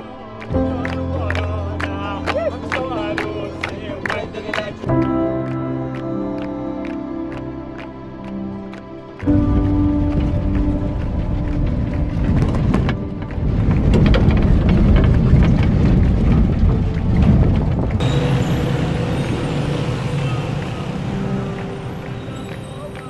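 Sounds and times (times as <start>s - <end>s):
busy street traffic: 9.2s - 23.0s
vehicle engine and road noise: 9.3s - 23.0s
vehicle body rattling: 10.0s - 22.7s.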